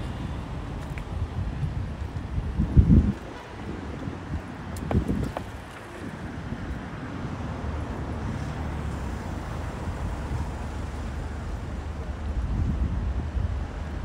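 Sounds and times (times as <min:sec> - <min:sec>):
traffic rumble: 0:00.0 - 0:14.0
wind buffeting microphone: 0:00.0 - 0:14.0.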